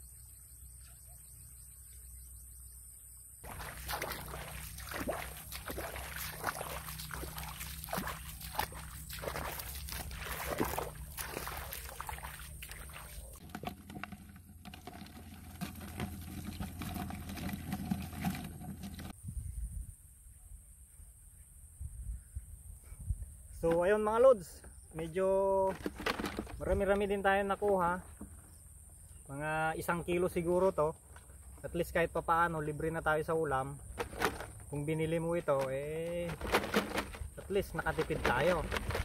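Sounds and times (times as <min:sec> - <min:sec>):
steps splashing through wet field: 0:03.4 - 0:19.2, 0:25.6 - 0:28.4, 0:33.9 - 0:39.0.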